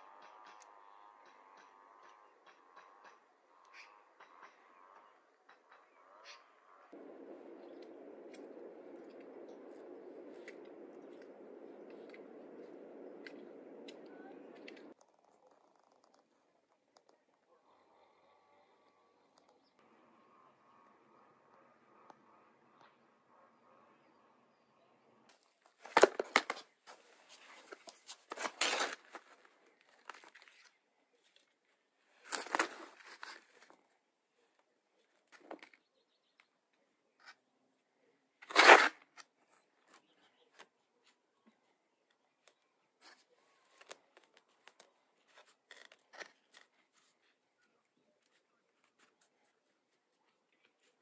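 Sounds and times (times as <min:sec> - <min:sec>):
faint clicks and rustles: 0:00.0 - 0:19.8, 0:25.3 - 0:51.0
rustling crinkling handling noise: 0:25.6 - 0:33.8.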